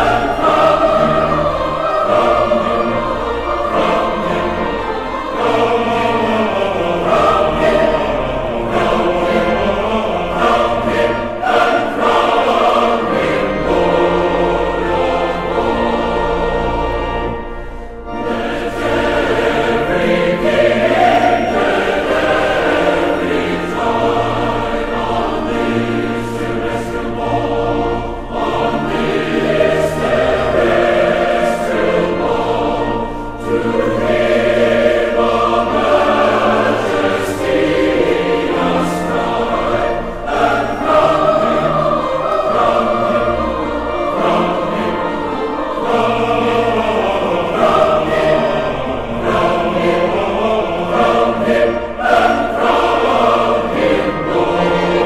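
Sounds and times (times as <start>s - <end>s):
choir singing held notes: 0.0s - 55.0s.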